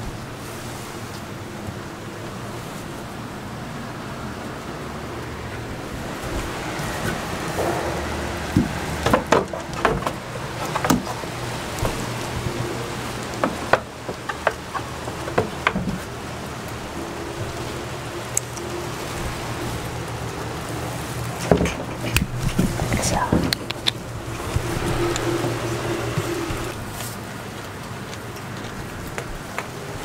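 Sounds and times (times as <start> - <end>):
rain on a wooden shed: 0.0 - 30.0
sharp taps and knocks: 7.0 - 12.6, 13.2 - 16.1.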